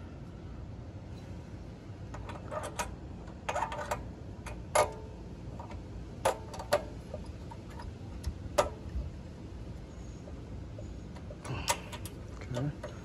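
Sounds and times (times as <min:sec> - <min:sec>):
metal adapter clicking against engine: 0:02.1 - 0:09.0, 0:11.0 - 0:13.0.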